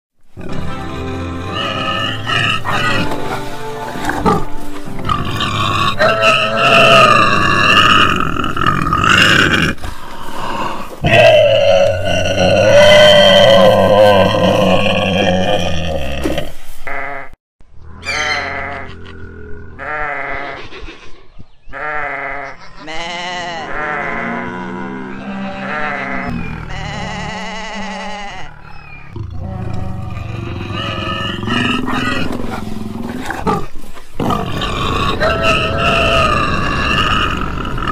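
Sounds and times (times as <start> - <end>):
background music: 0.3 - 7.3
quavering bleat-like cries: 0.4 - 3.2, 5.1 - 9.5, 11.0 - 16.3, 16.9 - 17.4, 18.0 - 20.6, 21.7 - 32.4, 34.6 - 37.9
low rough animal roar: 5.2 - 16.5, 28.4 - 37.9
wild animal calls: 28.1 - 37.9.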